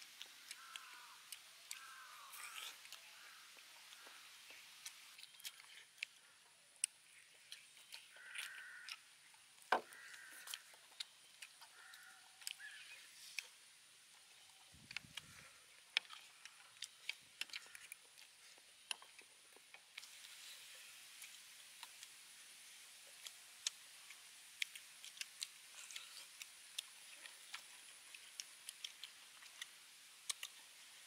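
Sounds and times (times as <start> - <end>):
steady high hiss: 0.0 - 5.2, 19.8 - 31.0
chewing smacks: 1.6 - 6.2, 14.8 - 20.4, 24.6 - 30.6.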